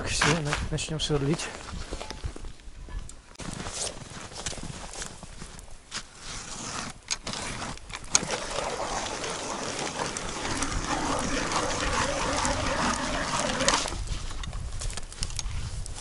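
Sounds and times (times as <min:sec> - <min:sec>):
ice auger grinding: 0:06.3 - 0:14.2.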